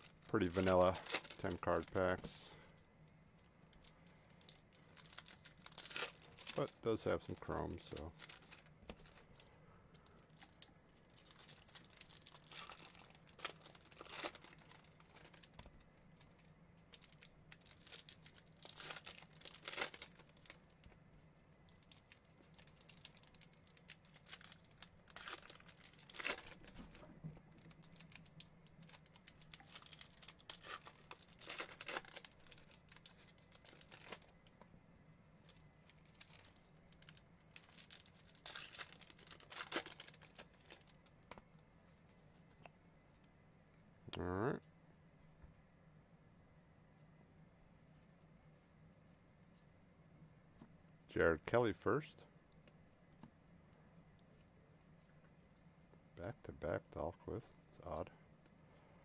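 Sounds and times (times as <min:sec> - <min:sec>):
foil wrappers crinkling and tearing: 0:00.0 - 0:02.6, 0:03.7 - 0:20.9, 0:21.7 - 0:34.5, 0:35.4 - 0:41.3.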